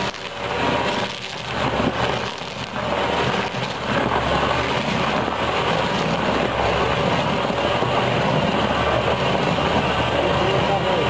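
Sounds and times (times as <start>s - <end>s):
wood cracking: 0.0s - 6.4s
stump grinder grinding: 0.0s - 11.0s
tractor engine drone: 0.0s - 11.0s.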